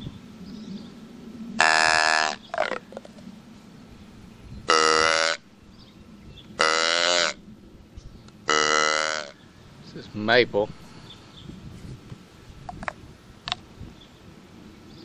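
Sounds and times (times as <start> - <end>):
wooden deer call: 1.6 - 3.0, 4.7 - 5.5, 6.6 - 7.4, 8.5 - 9.4.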